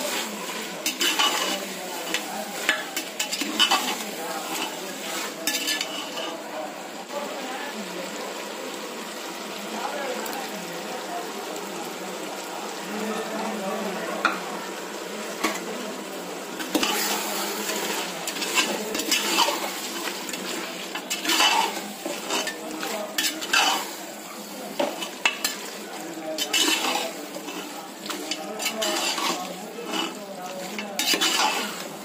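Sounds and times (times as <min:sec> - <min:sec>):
metal ladle scraping a metal pot: 0:00.0 - 0:06.4, 0:16.6 - 0:24.0, 0:26.4 - 0:32.0
frying sizzle: 0:00.0 - 0:32.0.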